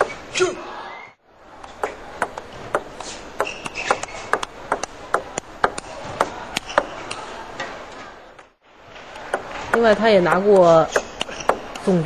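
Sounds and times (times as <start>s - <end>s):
table tennis ball hitting paddles: 0.0s - 0.2s, 1.6s - 12.0s
hall background noise: 0.0s - 12.0s
ball bouncing on table: 1.6s - 7.2s, 9.2s - 11.9s.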